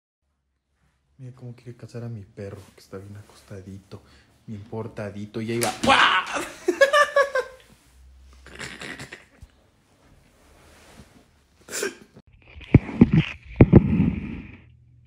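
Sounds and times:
person crying out: 5.8 - 6.5.

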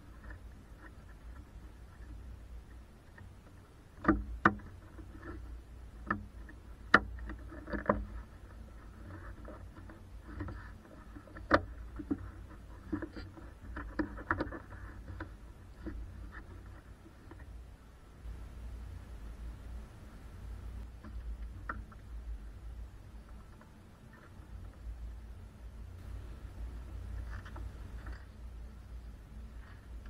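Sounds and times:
hard plastic clicks and knocks: 4.0 - 4.7.

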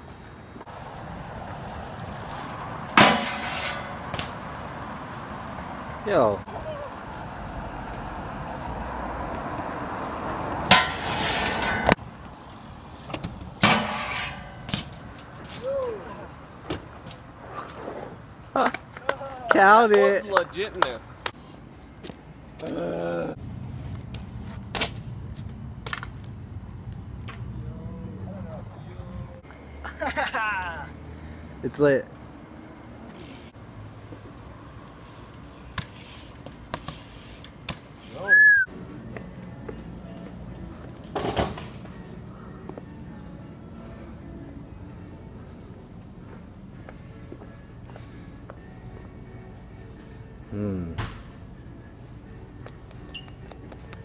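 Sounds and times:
low street noise: 0.0 - 54.0
loud scraping rushes: 10.7 - 12.0.

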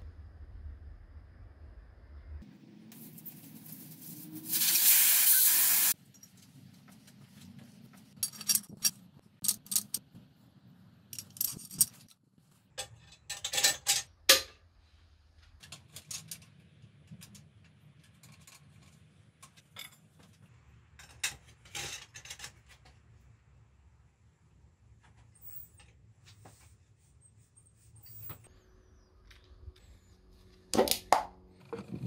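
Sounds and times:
metal tools clinking and clanking: 8.2 - 10.0, 11.2 - 12.1, 12.8 - 14.4, 18.2 - 20.3.

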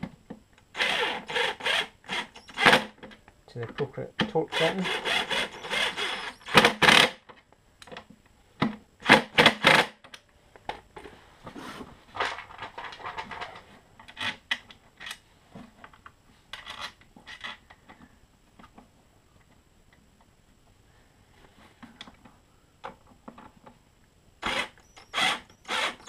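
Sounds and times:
cordless drill tightening bolts: 4.5 - 7.0
clicks and rubbing of parts: 11.8 - 20.3.

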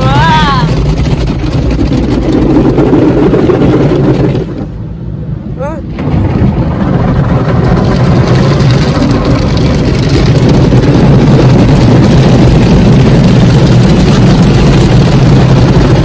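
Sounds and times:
car wash brushes scrubbing: 0.0 - 4.6, 7.5 - 16.0
water and foam spraying: 6.0 - 16.0.

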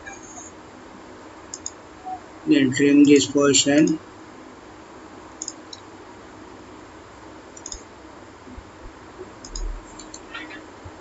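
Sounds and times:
faint steady hiss: 0.0 - 11.0
computer mouse clicks: 1.5 - 1.8, 5.4 - 5.8, 7.6 - 7.9, 9.4 - 10.3.

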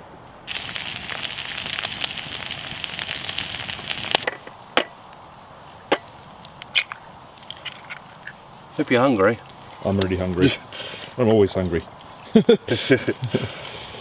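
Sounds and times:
bacon and potato sizzling: 0.5 - 4.6.

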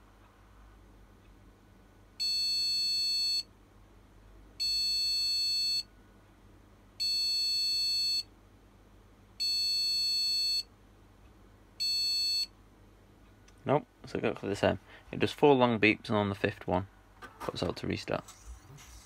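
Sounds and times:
high buzzer beeps: 2.2 - 3.5, 4.6 - 5.9, 7.0 - 8.3, 9.4 - 10.7, 11.8 - 12.5.

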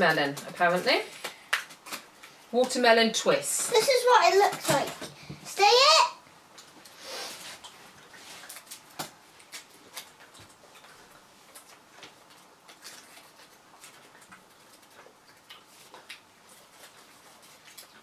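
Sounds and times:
gum being chewed: 6.6 - 18.0.

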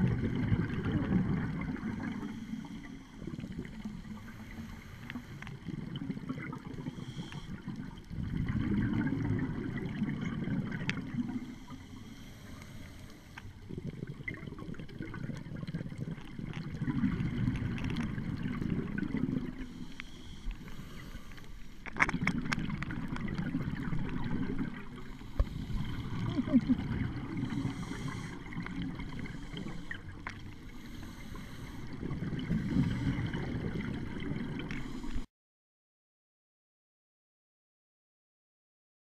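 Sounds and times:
scuba exhaust bubbles underwater: 0.0 - 35.3
faint clicks: 12.5 - 13.5.

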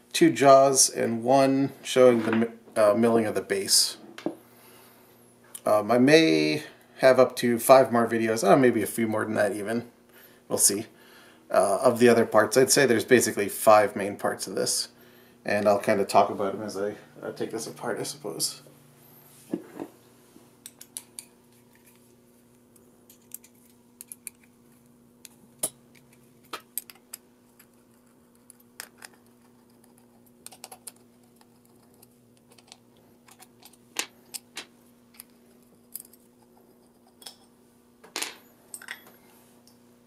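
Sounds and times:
faint steady hum: 0.0 - 40.0
metal parts set down: 38.0 - 39.2.

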